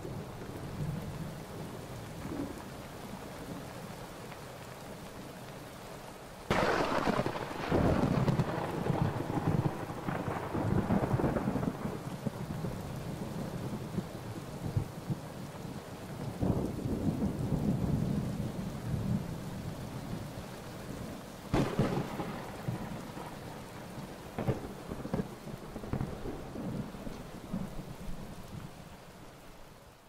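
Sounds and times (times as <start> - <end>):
rain on open water: 0.0 - 30.0
sharp thunderclap: 6.5 - 12.0, 21.5 - 23.2
rolling thunder: 6.5 - 12.8, 21.5 - 28.2.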